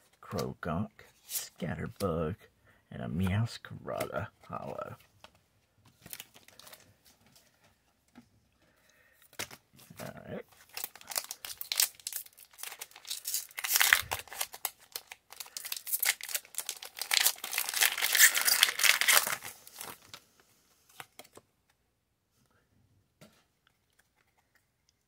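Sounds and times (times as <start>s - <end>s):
foil wrapper crinkling: 6.0s - 7.0s, 10.5s - 20.2s.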